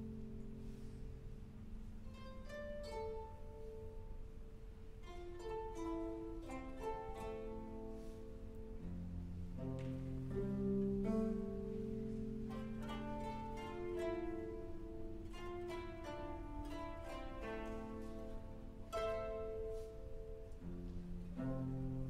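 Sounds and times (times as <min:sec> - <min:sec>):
plucked ringing notes: 0:00.0 - 0:22.0.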